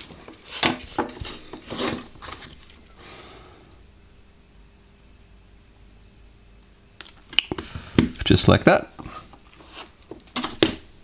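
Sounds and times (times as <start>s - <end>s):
tools rubbing and scraping: 0.0s - 2.8s, 9.0s - 10.0s.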